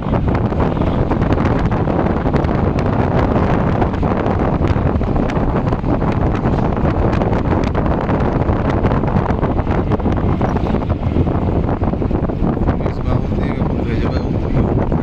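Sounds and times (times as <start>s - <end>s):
vehicle engine and tyres rumbling: 0.0s - 15.0s
wind buffeting microphone: 0.0s - 15.0s.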